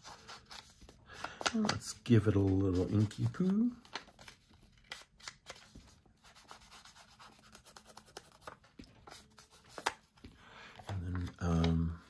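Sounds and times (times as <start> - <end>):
faint scratchy paper rubbing: 1.7 - 10.0.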